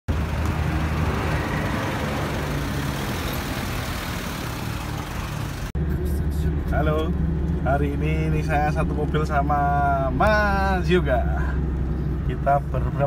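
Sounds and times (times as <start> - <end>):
truck engine idling: 0.1 - 6.5.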